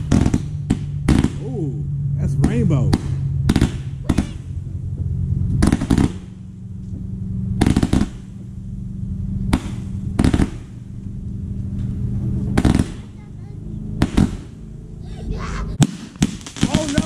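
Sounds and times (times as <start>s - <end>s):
firework bangs: 0.0s - 4.8s, 5.5s - 6.7s, 7.5s - 8.7s, 9.4s - 11.0s, 12.5s - 14.7s, 15.7s - 17.0s
steady low hum: 0.0s - 17.0s.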